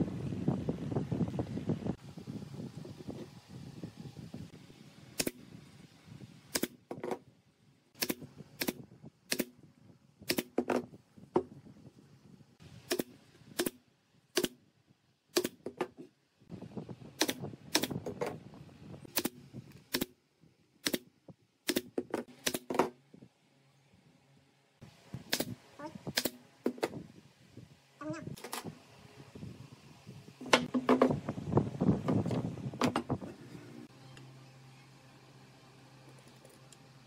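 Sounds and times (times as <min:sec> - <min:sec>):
nail gun firing: 0:05.2 - 0:05.4, 0:06.5 - 0:06.9, 0:08.0 - 0:09.6, 0:10.3 - 0:10.8, 0:12.9 - 0:14.6, 0:15.3 - 0:15.8, 0:17.2 - 0:18.2, 0:19.1 - 0:20.2, 0:20.8 - 0:22.9, 0:25.3 - 0:26.9.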